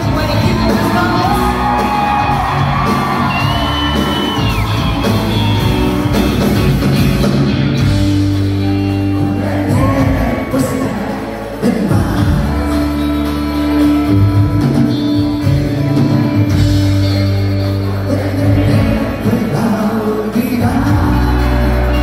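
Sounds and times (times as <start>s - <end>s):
person singing: 0.0s - 3.8s, 9.0s - 14.2s, 17.0s - 22.0s
bass guitar: 0.0s - 22.0s
drums: 0.0s - 22.0s
electric guitars: 0.0s - 22.0s.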